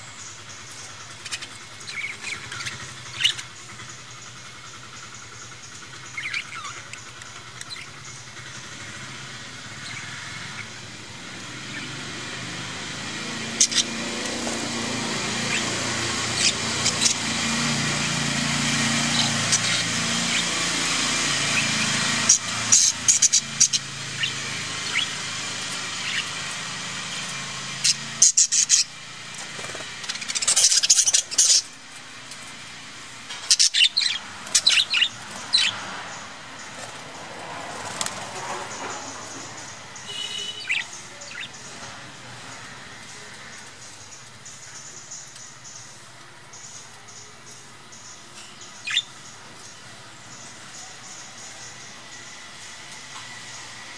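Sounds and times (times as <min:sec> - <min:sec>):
budgerigars chirping: 0:00.0 - 0:08.7, 0:09.7 - 0:10.9, 0:13.3 - 0:31.8, 0:33.3 - 0:36.9, 0:37.8 - 0:52.2
low drone: 0:08.1 - 0:40.4.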